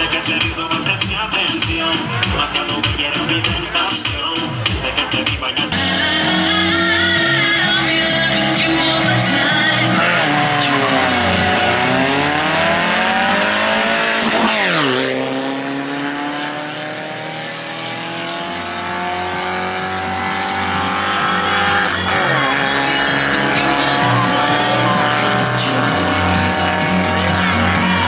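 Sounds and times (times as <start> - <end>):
race car engine accelerating: 5.7 - 28.0.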